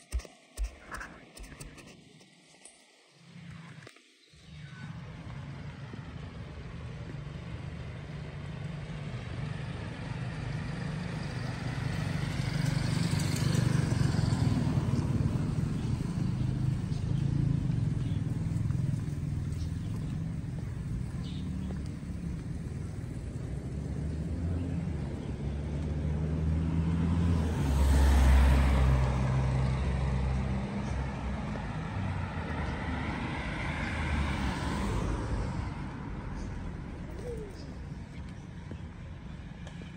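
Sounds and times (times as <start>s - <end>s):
car passing: 4.6s - 39.9s.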